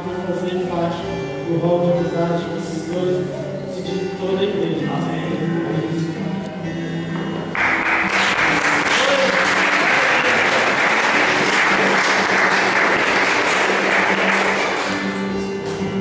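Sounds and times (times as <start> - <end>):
music with long held notes: 0.0 - 16.0
audience applause: 7.6 - 15.2.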